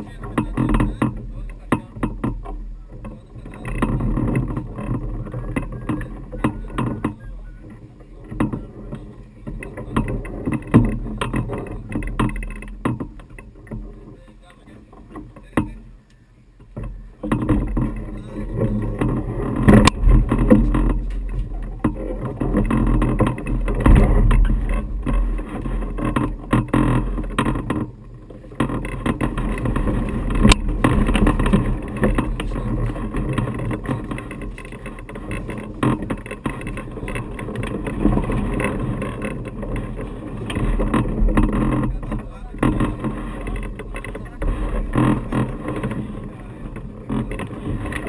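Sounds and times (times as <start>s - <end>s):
wind buffeting microphone: 0.0s - 48.0s
sharp knocks: 16.6s - 27.9s.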